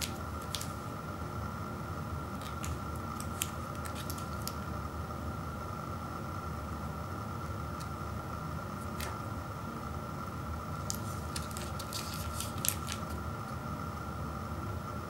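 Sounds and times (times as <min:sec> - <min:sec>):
foil wrapper crinkling and tearing: 0:00.0 - 0:00.8, 0:02.4 - 0:04.6, 0:10.9 - 0:13.2
low background hum: 0:00.0 - 0:15.0.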